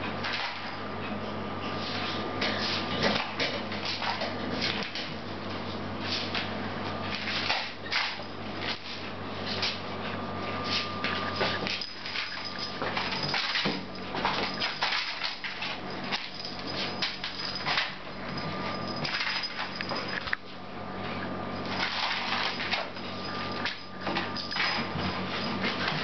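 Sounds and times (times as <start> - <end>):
steady low hum: 0.0 - 26.0
cat scuffling and rustling: 8.6 - 26.0.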